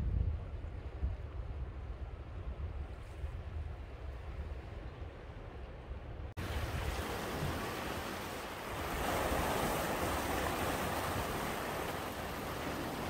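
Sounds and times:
low rumbling sea: 0.0 - 13.0
waves breaking against rocks: 6.4 - 13.0.

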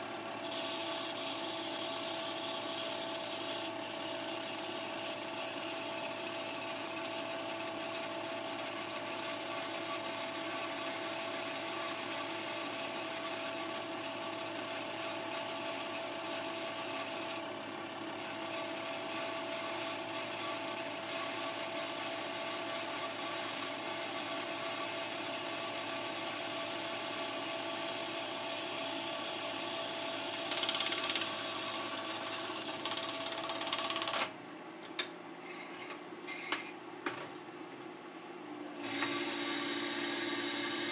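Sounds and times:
film projector whirring: 0.0 - 34.4, 38.7 - 40.9.

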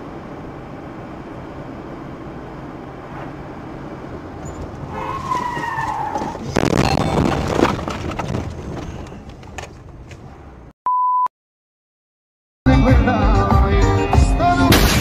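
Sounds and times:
car road and engine noise: 0.0 - 10.8
tyres squealing: 4.4 - 10.4
loud crash of impact: 14.7 - 15.0.

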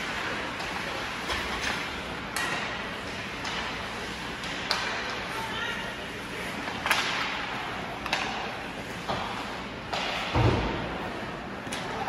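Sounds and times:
hockey stick clacking puck: 0.0 - 5.2, 6.6 - 10.6.

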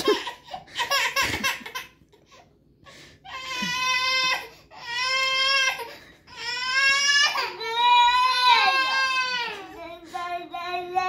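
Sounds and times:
baby crying: 3.2 - 11.0.

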